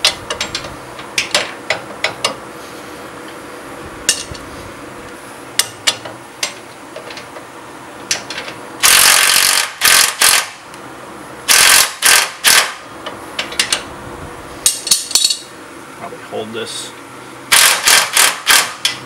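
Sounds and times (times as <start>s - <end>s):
impact driver hammering bursts: 8.8s - 10.6s, 11.5s - 12.8s, 17.5s - 19.0s.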